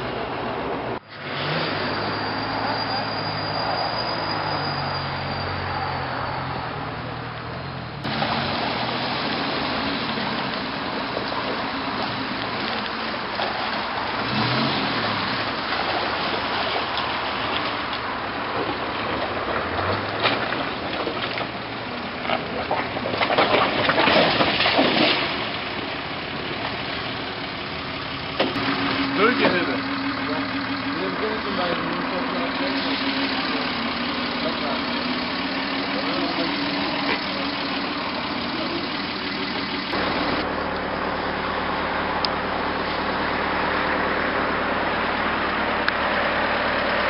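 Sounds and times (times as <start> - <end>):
off-road engines working: 0.0 - 47.0
tyres churning and splashing: 8.0 - 47.0.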